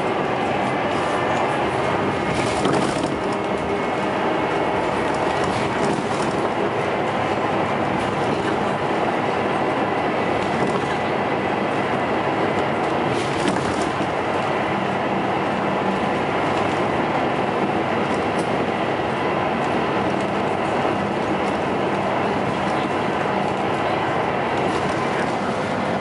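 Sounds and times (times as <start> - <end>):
bus engine and road drone: 0.0 - 26.0
rattling bus interior fittings: 0.4 - 14.4.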